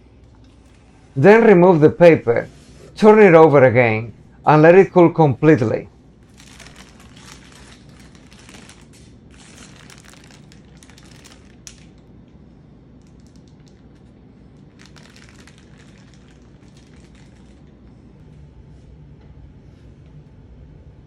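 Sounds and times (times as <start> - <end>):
parchment paper crinkling: 6.2 - 12.1, 13.0 - 18.0.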